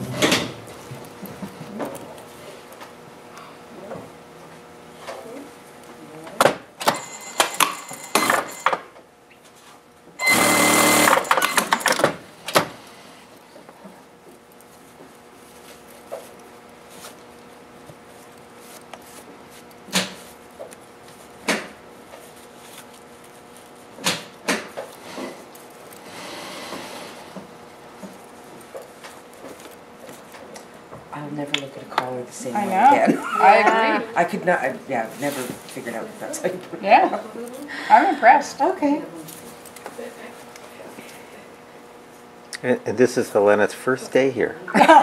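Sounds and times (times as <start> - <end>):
sewing machine stitching: 10.2 - 12.0.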